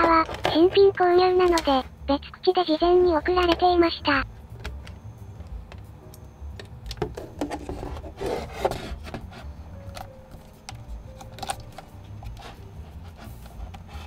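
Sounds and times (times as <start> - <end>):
camera handling rubbing and scraping: 7.3 - 14.0.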